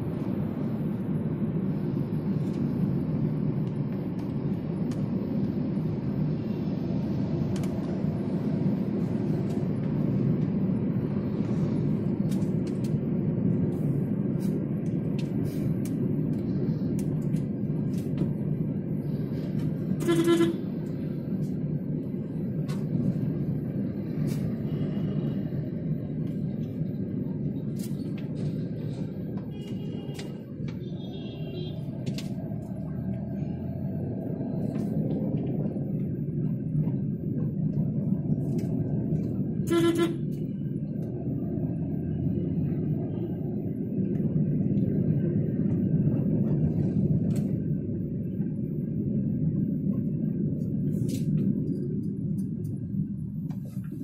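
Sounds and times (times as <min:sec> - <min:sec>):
car road and engine rumble: 0:00.0 - 0:54.0
car horn honk: 0:20.0 - 0:20.6, 0:39.6 - 0:40.3
distant horn toots: 0:20.0 - 0:20.9, 0:29.4 - 0:32.0, 0:39.5 - 0:40.5.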